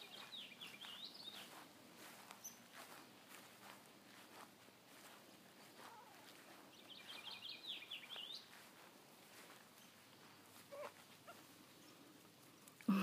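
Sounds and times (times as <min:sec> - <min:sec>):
bird chirping: 0:00.0 - 0:03.0, 0:05.8 - 0:08.7.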